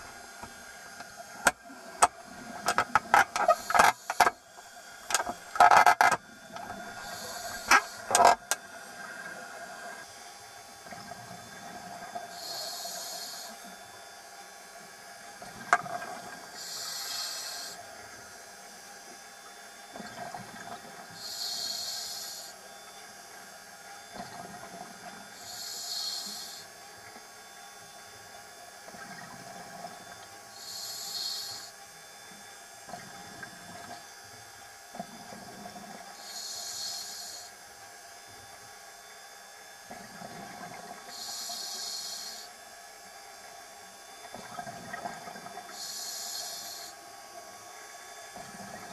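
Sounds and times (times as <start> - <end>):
diver breathing through regulator: 2.6 - 4.4, 6.6 - 8.4, 12.3 - 13.6, 16.6 - 17.8, 21.2 - 22.6, 25.4 - 26.7, 30.6 - 31.7, 36.2 - 37.5, 41.1 - 42.5, 45.7 - 47.0.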